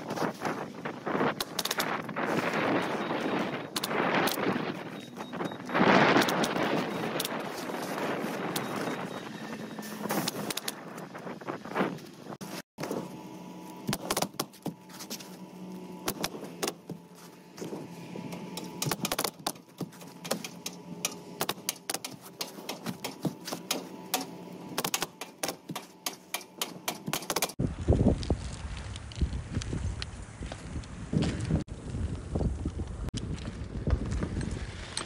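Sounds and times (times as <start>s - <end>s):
steady hum: 11.2s - 27.8s
roofing clicks and taps: 17.6s - 27.6s.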